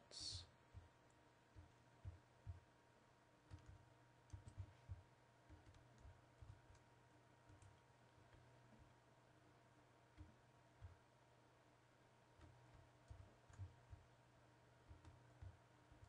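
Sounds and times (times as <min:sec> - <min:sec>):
steady low hum: 0:00.0 - 0:16.0
typing on computer keyboard: 0:03.4 - 0:08.9, 0:12.4 - 0:14.2, 0:14.8 - 0:16.0.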